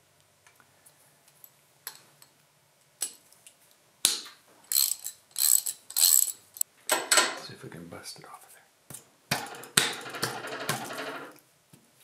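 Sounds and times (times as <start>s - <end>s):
ratchet wrench clicking: 4.7s - 6.6s.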